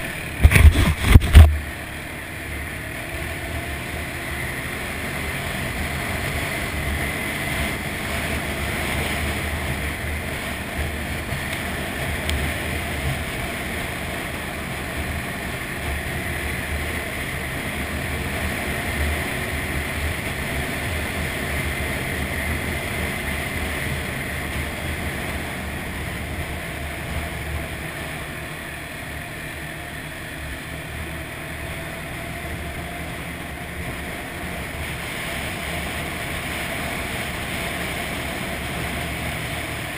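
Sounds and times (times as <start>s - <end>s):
atv engine running: 0.0s - 39.9s
wind on microphone: 0.4s - 1.6s.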